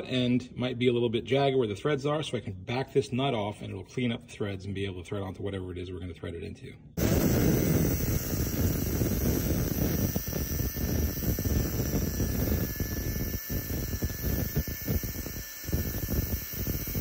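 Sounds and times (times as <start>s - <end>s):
cut-off wheel grinding metal: 7.0s - 17.0s.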